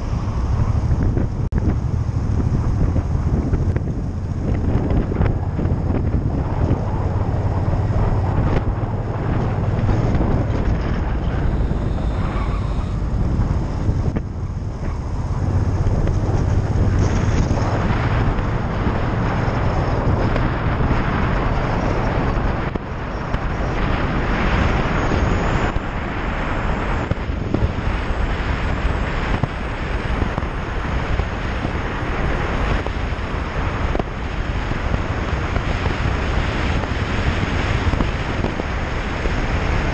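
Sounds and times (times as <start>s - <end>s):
motorcycle engine running: 0.0s - 26.0s
wind rush on microphone: 0.0s - 39.9s.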